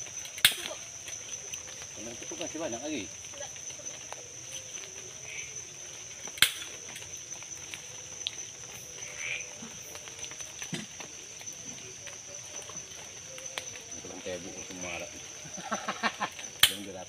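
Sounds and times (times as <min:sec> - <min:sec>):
night insects droning: 0:00.0 - 0:17.0
sharp snap: 0:16.6 - 0:16.9.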